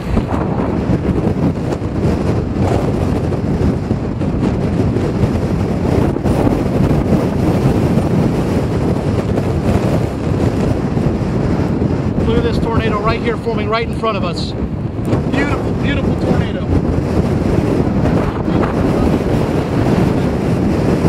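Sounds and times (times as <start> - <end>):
storm wind buffeting microphone: 0.0 - 21.0.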